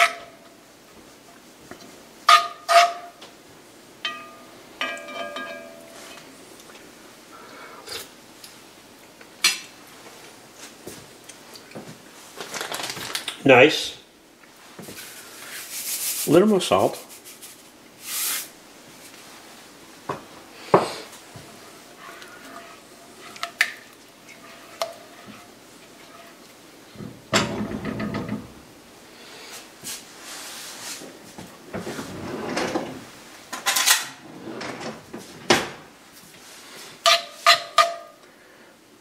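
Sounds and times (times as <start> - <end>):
utensil stirring thick sauce: 21.3 - 26.6
utensil scraping pot: 21.4 - 26.5.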